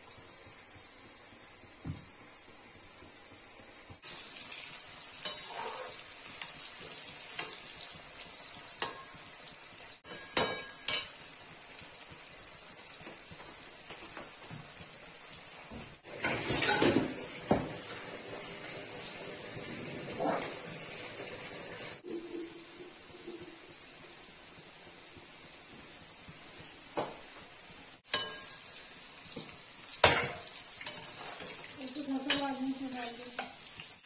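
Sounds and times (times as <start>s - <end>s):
vegetables sizzling in oil: 0.0s - 34.0s
stirring and scraping in pan: 4.0s - 15.0s, 15.6s - 20.8s, 28.0s - 34.0s
metal spatula clinking on pan: 8.8s - 9.2s, 10.0s - 11.2s, 28.1s - 28.8s, 30.0s - 32.6s.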